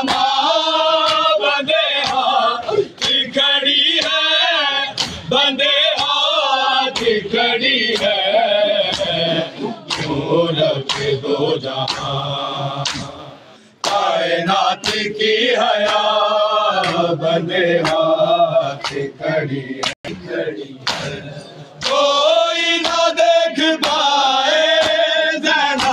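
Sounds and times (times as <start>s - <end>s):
men chanting in unison: 0.0s - 25.9s
chest-beating slaps: 4.9s - 5.3s, 6.9s - 7.2s, 8.8s - 11.2s, 12.8s - 13.2s, 13.8s - 14.2s, 14.8s - 15.1s, 16.8s - 17.1s, 17.8s - 18.1s, 18.8s - 19.1s, 20.8s - 22.1s.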